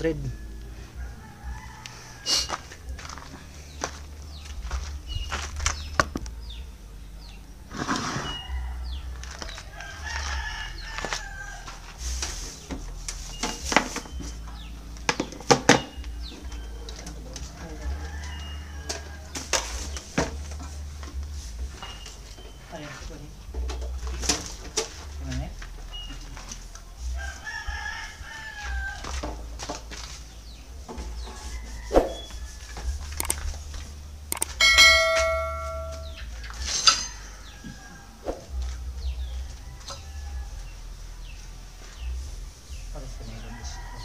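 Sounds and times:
rooster crowing: 0.3s - 4.0s, 8.1s - 12.0s, 17.6s - 19.5s, 27.2s - 29.2s, 31.2s - 33.3s, 34.3s - 38.2s, 39.4s - 41.1s, 43.3s - 44.0s.

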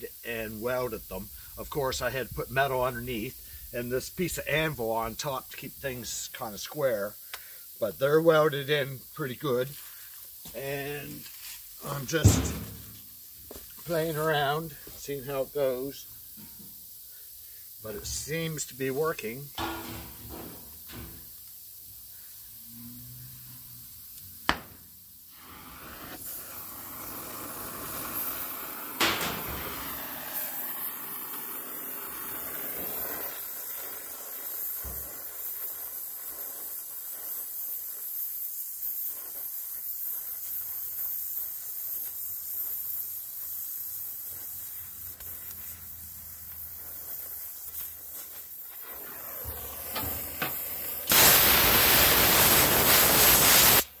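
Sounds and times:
flame hissing: 0.0s - 54.0s
welding torch gas hissing: 0.0s - 54.0s
torch lighting pop: 11.9s - 14.0s, 19.5s - 21.4s, 24.4s - 35.5s, 47.8s - 54.0s.

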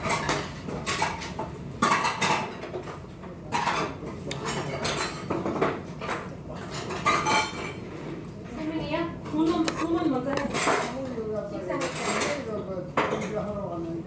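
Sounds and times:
metal utensils clinking on dishes: 0.0s - 7.9s, 8.5s - 13.5s.

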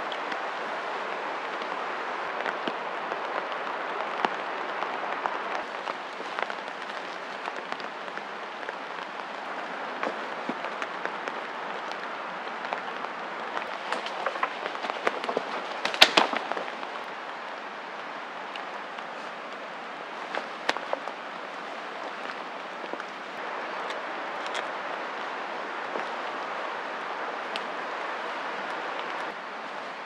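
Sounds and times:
branches and twigs snapping: 12.6s - 17.1s, 20.2s - 24.8s.

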